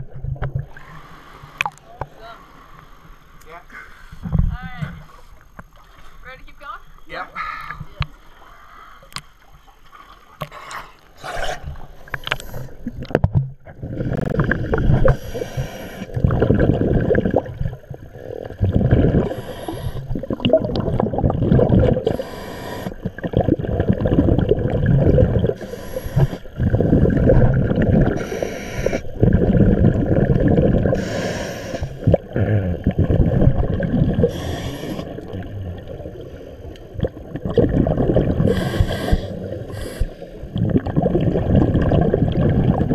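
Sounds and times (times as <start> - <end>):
underwater rumbling churn: 0.0 - 1.8, 11.1 - 42.9
breathing hiss: 15.0 - 16.2, 19.2 - 20.1, 22.1 - 23.1, 25.6 - 26.6, 28.2 - 29.1, 31.0 - 32.1, 34.2 - 35.4, 38.4 - 40.5.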